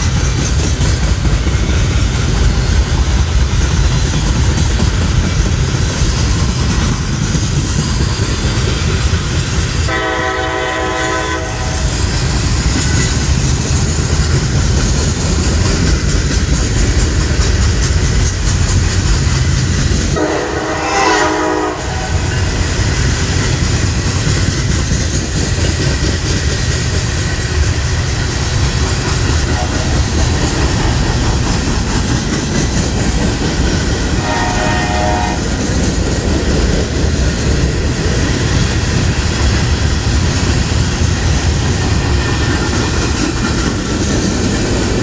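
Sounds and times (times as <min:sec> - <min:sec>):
locomotive horn blasts: 0:09.9 - 0:11.8, 0:20.2 - 0:22.4, 0:34.2 - 0:35.4.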